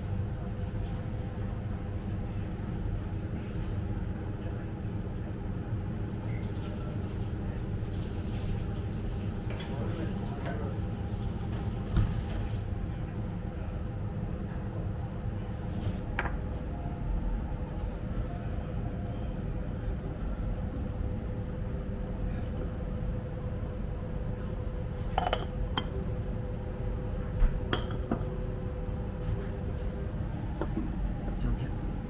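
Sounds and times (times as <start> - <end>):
steady low hum: 12.7 - 32.0
ceramic tableware clinking: 25.0 - 26.0, 27.7 - 28.3.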